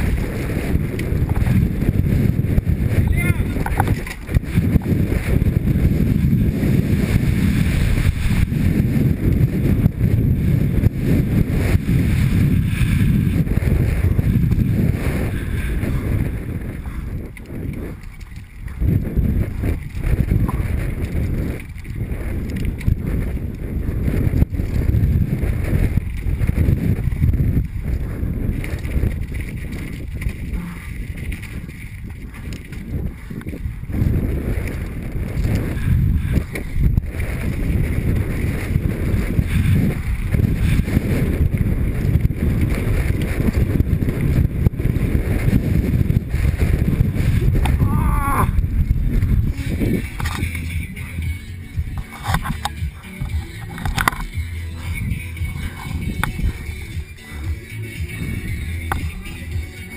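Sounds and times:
mountain bike rattling over rocks: 0.0s - 7.7s, 16.1s - 47.8s, 48.9s - 51.0s, 51.8s - 54.7s
wind buffeting camera: 0.0s - 59.9s.

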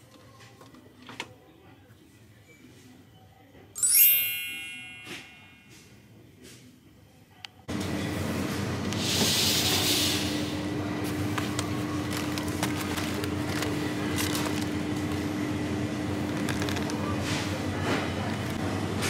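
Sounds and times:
freezer case hum: 10.5s - 19.0s
packages and freezer door clicks: 11.2s - 15.2s.

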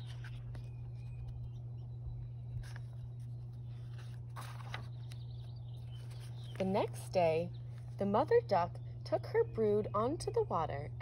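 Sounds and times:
paper page turning: 0.0s - 1.6s, 2.5s - 7.0s
steady low hum: 0.0s - 11.0s.

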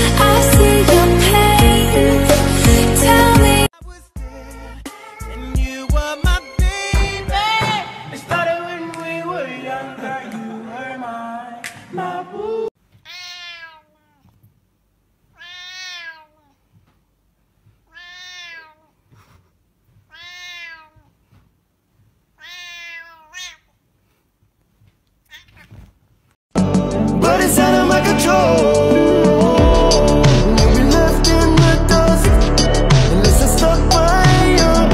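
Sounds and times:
song with singing: 0.0s - 12.8s, 26.6s - 34.9s
cat meowing: 4.2s - 5.6s, 13.0s - 14.4s, 15.3s - 16.6s, 17.9s - 19.0s, 20.1s - 21.2s, 22.4s - 23.7s, 25.2s - 25.9s.

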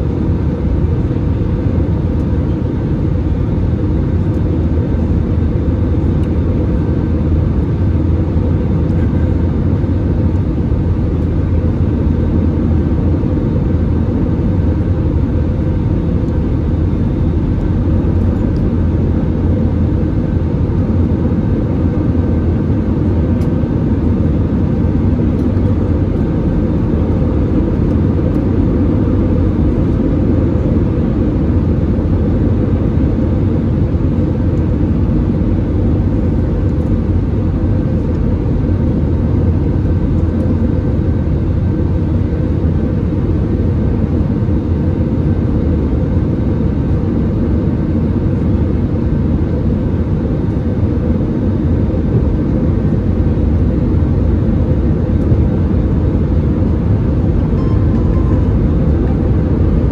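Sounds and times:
aircraft cabin engine drone: 0.0s - 59.9s
faint steady whine: 0.0s - 59.9s.

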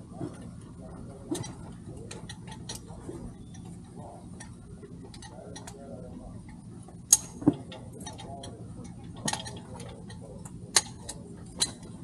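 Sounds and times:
steady low hum: 0.0s - 12.0s
clicks and knocks of boat fittings: 7.1s - 12.0s.

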